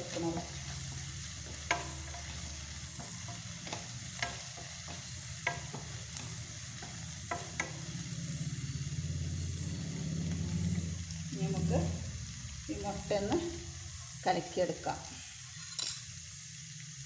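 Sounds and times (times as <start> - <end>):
vegetables sizzling in oil: 0.0 - 17.0
spatula tapping and scraping pan: 0.1 - 8.6.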